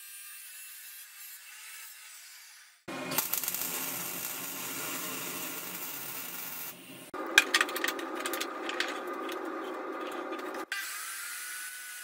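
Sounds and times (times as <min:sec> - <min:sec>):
metal clicks and clanks: 0:07.2 - 0:10.7.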